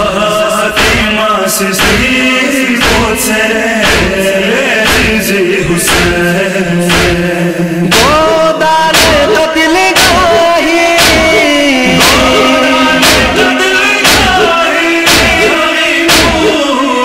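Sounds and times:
men chanting a lament: 0.0s - 17.0s
heavy steady beat: 0.8s - 1.2s, 1.8s - 4.2s, 4.8s - 6.3s, 6.9s - 7.3s, 7.9s - 16.8s
low held tone: 11.4s - 15.6s.

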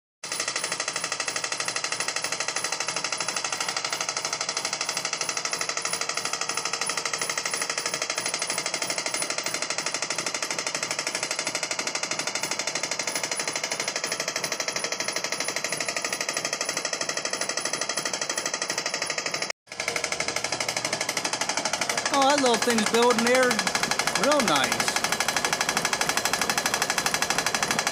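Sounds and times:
air compressor pounding: 0.2s - 27.9s.

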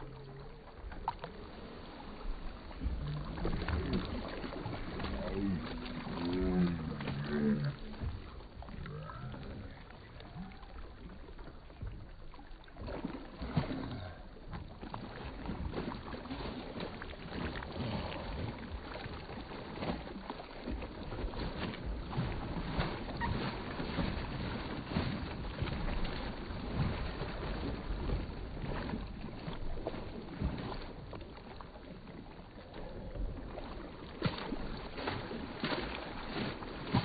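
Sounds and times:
child kicking water splashing: 2.9s - 9.6s, 12.8s - 30.9s, 34.1s - 37.0s.

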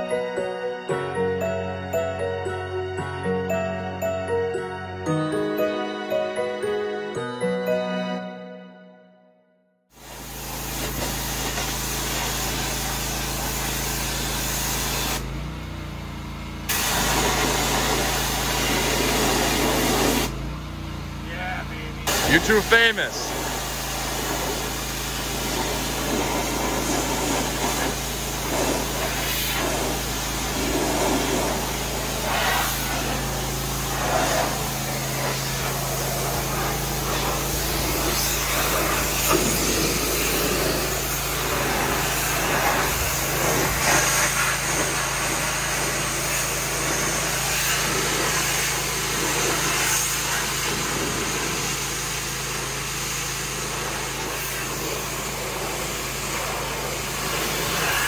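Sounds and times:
pressure washer spraying wood: 9.9s - 15.4s, 16.7s - 20.4s, 22.0s - 58.0s.

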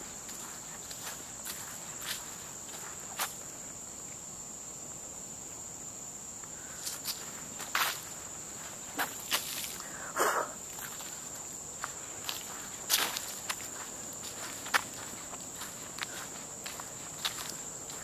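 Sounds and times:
footsteps crunching on dry leaves: 0.0s - 3.4s, 6.8s - 9.9s, 10.6s - 18.0s
insects buzzing: 0.0s - 18.0s.

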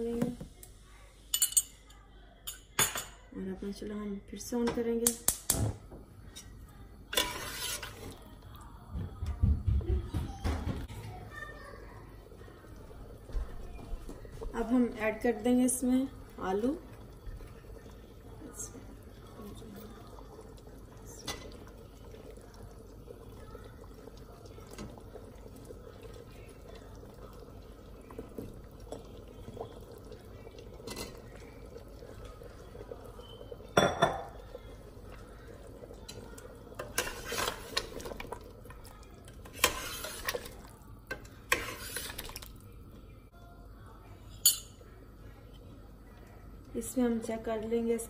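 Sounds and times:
ladle stirring and clinking on pot: 6.3s - 8.2s, 30.5s - 35.2s, 36.0s - 42.6s, 44.4s - 44.8s.

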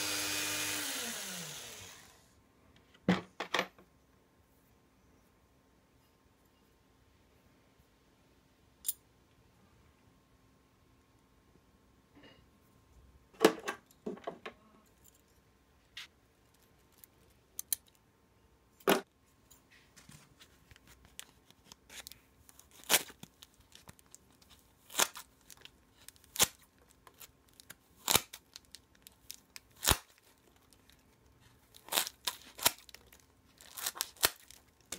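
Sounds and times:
scissors cutting foam: 28.0s - 28.4s, 31.8s - 33.0s.

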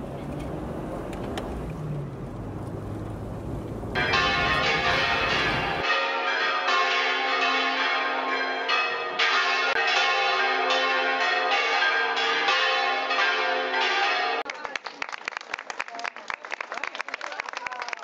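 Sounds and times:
church bells ringing: 3.9s - 14.5s.

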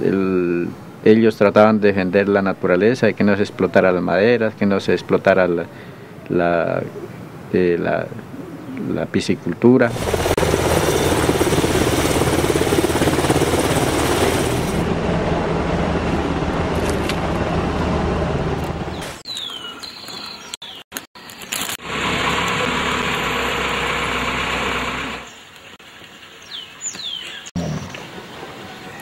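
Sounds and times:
helicopter rotor and engine: 9.9s - 19.2s
bird chirps: 18.9s - 21.5s, 26.2s - 29.0s.

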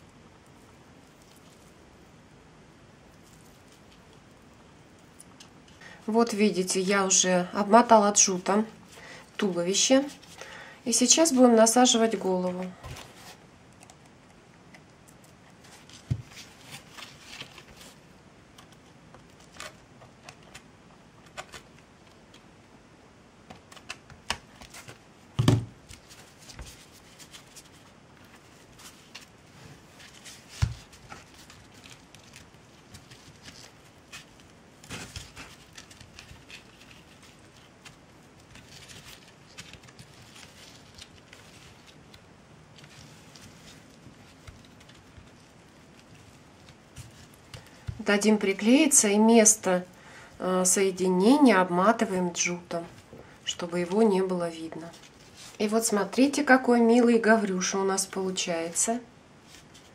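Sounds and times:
hands handling craft pieces: 8.2s - 22.6s, 23.4s - 49.2s, 52.8s - 56.5s.

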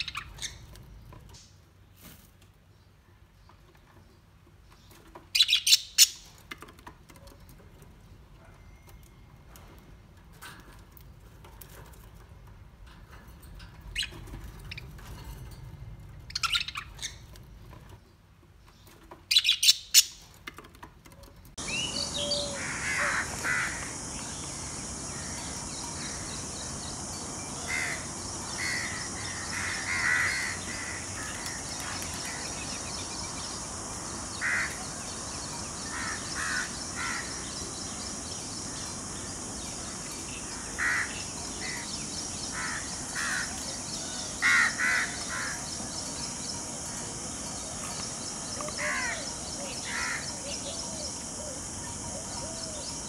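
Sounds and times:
birds calling: 0.0s - 1.6s, 3.5s - 9.7s, 13.1s - 20.8s, 21.5s - 53.0s
short chirping calls: 21.6s - 51.6s
steady high hiss: 21.6s - 53.0s.

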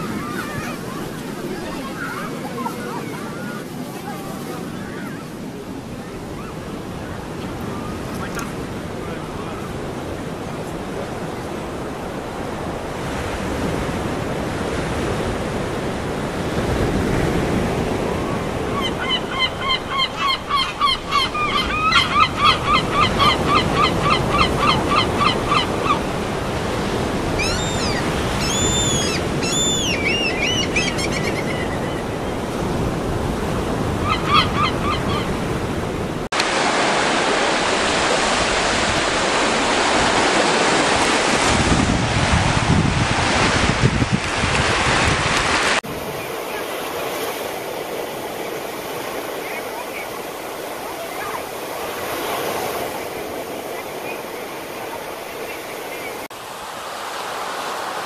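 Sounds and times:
ocean surf washing: 0.0s - 58.0s
birds calling: 18.5s - 32.8s, 33.6s - 35.8s.

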